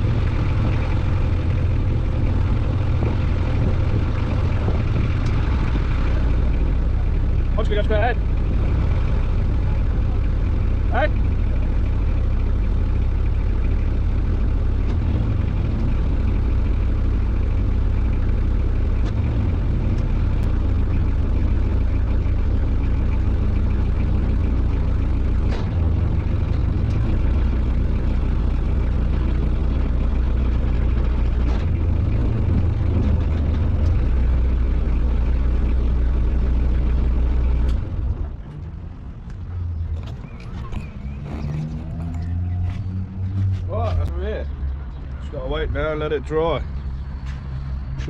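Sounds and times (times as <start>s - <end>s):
boat engine running: 0.0s - 48.0s.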